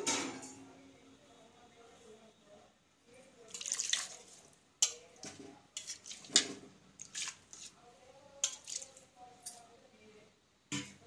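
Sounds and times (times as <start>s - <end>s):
curry simmering: 3.3s - 9.6s
liquid pouring and splashing: 3.5s - 4.5s, 5.8s - 7.7s, 8.4s - 9.0s
metal spatula scraping a pot: 4.1s - 7.8s, 8.4s - 9.6s.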